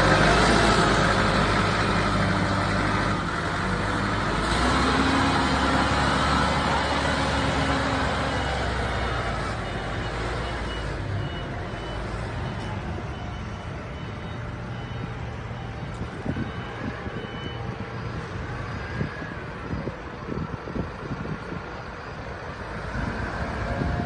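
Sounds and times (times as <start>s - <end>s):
forklift engine running: 0.0s - 24.0s
reversing alarm beeps: 5.2s - 20.8s.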